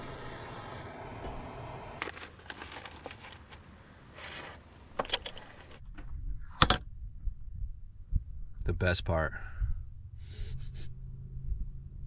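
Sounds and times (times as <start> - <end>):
handling clicks and rustles: 2.0 - 6.1.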